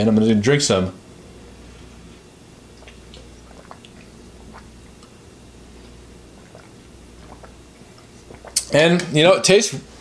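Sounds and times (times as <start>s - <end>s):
low steady hum: 0.0s - 10.0s
person sipping and swallowing: 2.6s - 8.7s.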